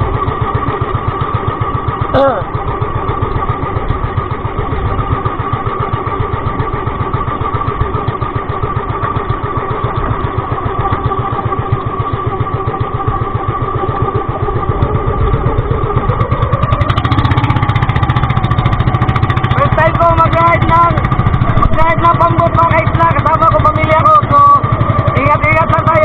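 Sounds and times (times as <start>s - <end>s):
boat engine running: 0.0s - 26.0s.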